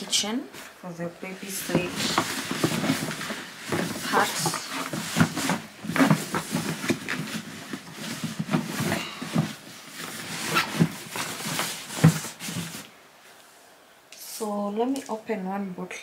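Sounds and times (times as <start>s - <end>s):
packaging rustling and knocking: 1.6s - 12.9s.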